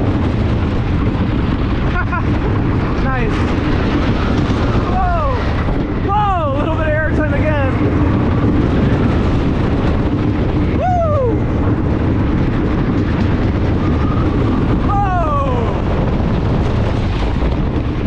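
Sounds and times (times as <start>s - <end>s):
roller coaster rumbling on track: 0.0s - 18.0s
riders whooping: 4.8s - 6.6s, 10.6s - 12.4s, 13.8s - 16.4s.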